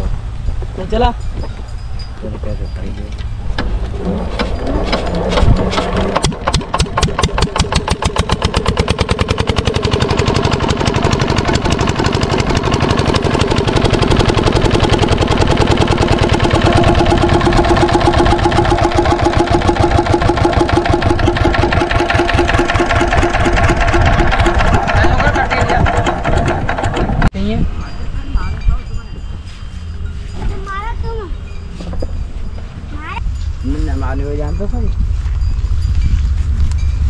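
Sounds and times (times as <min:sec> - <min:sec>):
diesel engine running: 0:00.0 - 0:27.4.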